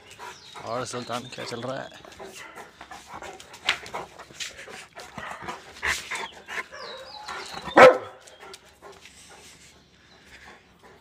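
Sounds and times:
dog barking: 0:07.7 - 0:08.2.

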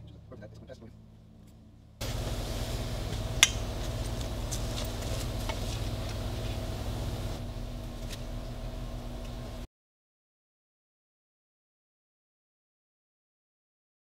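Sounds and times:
low steady hum: 0:00.0 - 0:09.7.

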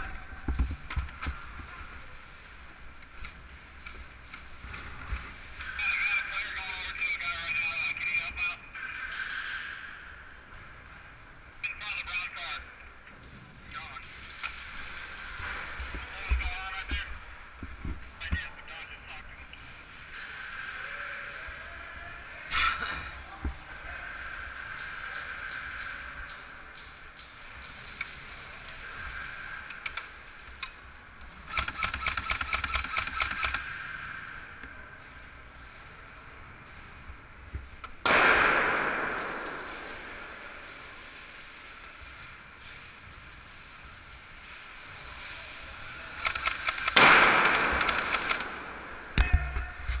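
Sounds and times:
steady background noise: 0:00.0 - 0:50.0
airsoft guns firing: 0:31.4 - 0:34.0, 0:38.0 - 0:41.1, 0:46.2 - 0:49.4.

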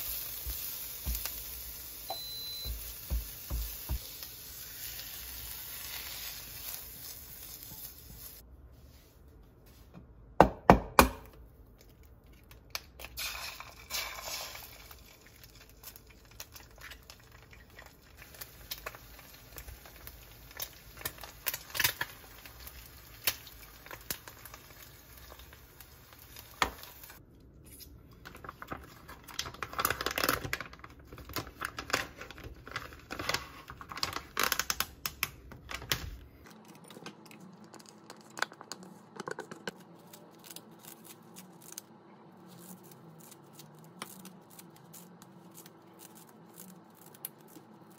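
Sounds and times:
plastic packet crinkling and tearing: 0:28.2 - 0:38.4.

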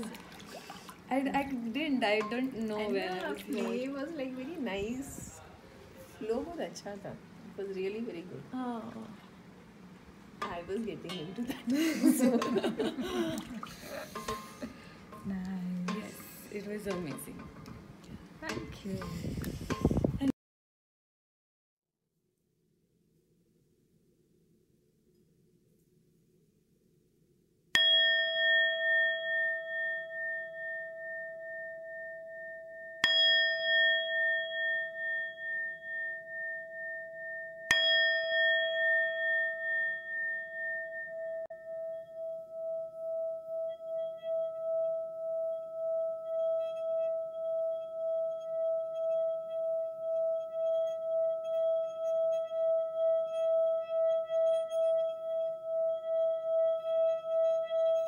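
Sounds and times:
singing bowl ringing: 0:27.8 - 0:58.0.

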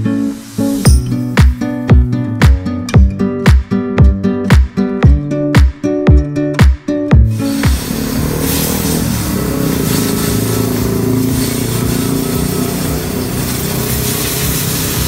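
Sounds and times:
guitar music: 0:00.0 - 0:15.0
hiss of spraying water: 0:00.2 - 0:00.9, 0:07.3 - 0:15.0
motor running: 0:07.5 - 0:15.0.

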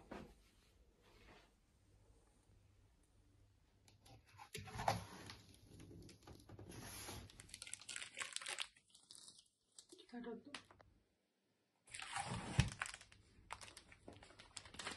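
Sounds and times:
plastic wrap crinkling: 0:05.8 - 0:10.2, 0:11.9 - 0:14.9
cardboard and polystyrene shifting: 0:06.7 - 0:08.0.

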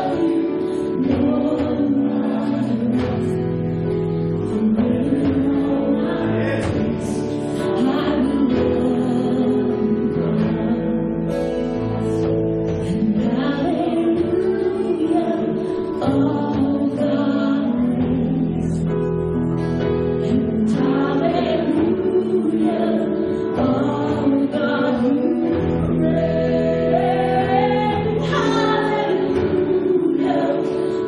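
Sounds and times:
worship band playing: 0:00.0 - 0:31.0
voices singing: 0:04.4 - 0:11.2, 0:20.2 - 0:31.0.

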